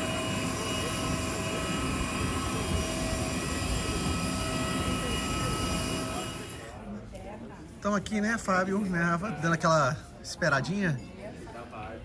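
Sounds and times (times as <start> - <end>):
aircraft roar: 0.0 - 6.7
jet engine whine: 0.0 - 6.8.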